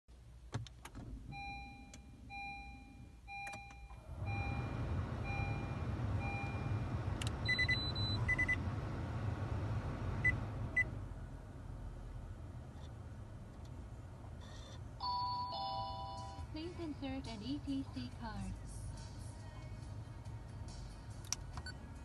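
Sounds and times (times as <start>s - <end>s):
steady low rumble: 3.9s - 15.0s
clicks: 7.1s - 7.4s
dashboard chime beeping: 7.4s - 8.6s
short beeps: 7.4s - 8.6s.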